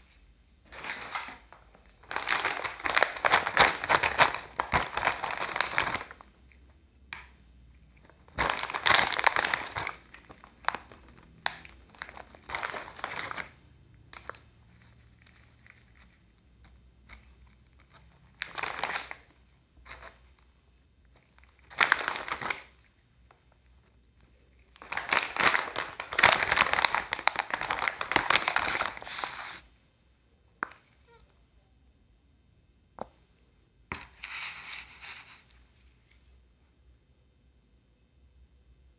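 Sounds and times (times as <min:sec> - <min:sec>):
plastic snack bag crinkling: 0:00.6 - 0:29.7.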